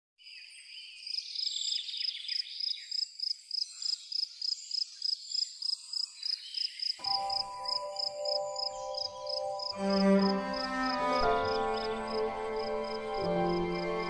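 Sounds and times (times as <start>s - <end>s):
high repeating chirp: 7.0s - 12.2s.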